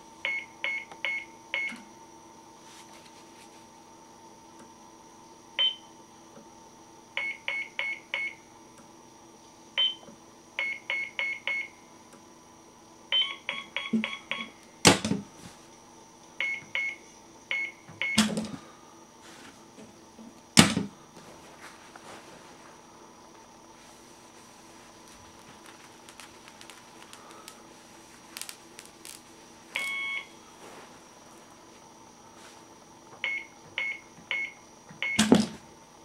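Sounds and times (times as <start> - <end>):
electronic keypad beeps: 13.2 - 14.6, 29.8 - 30.3.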